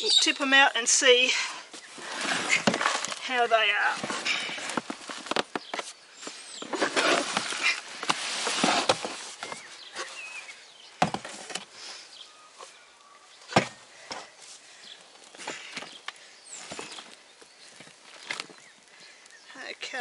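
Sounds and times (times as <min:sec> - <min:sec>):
potting soil spilling and rustling: 0:00.4 - 0:20.0
plastic scraping against plastic: 0:01.8 - 0:11.8.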